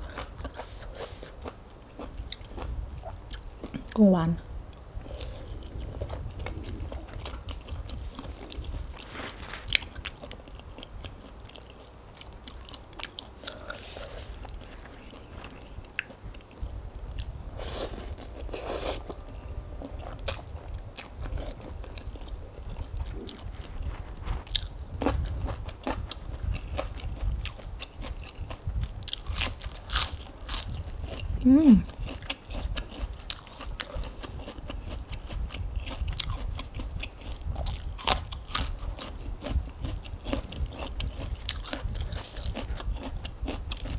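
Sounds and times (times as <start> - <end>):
chewing and biting: 0.0 - 4.0, 5.0 - 43.9
crisp lettuce crunching: 29.1 - 30.8.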